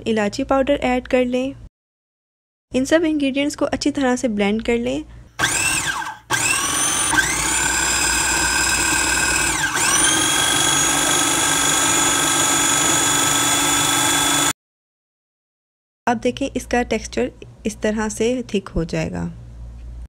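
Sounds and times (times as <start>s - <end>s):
food processor motor whining: 5.4s - 14.6s.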